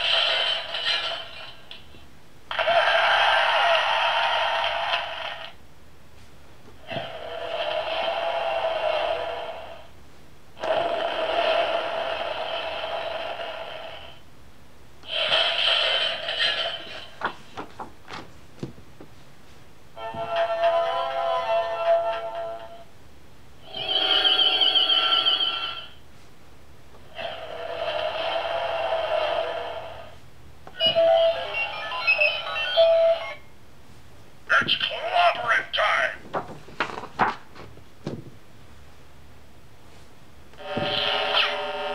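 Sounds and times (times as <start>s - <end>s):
sound effects from small speaker: 30.8s - 33.4s, 34.5s - 36.2s.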